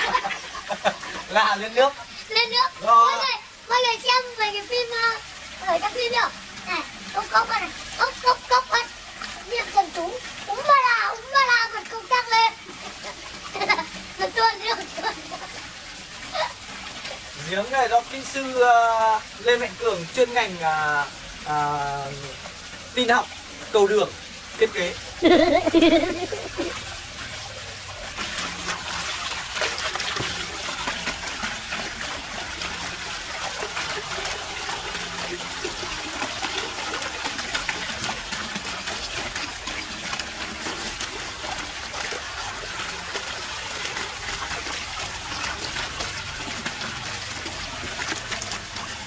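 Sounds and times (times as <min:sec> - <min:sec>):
water gushing from outlet: 0:00.0 - 0:49.0
water splashing over hands: 0:25.2 - 0:26.8.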